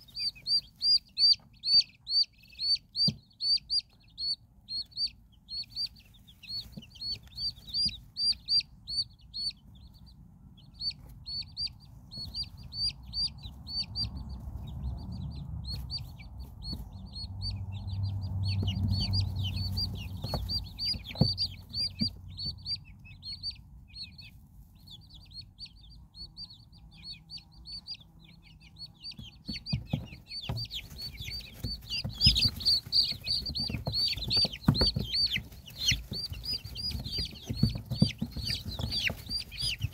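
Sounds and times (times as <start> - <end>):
chicks peeping: 0.0 - 39.9
hen clucking: 0.0 - 39.9
knocks and scuffles: 15.6 - 17.4, 18.2 - 22.6, 29.1 - 39.9.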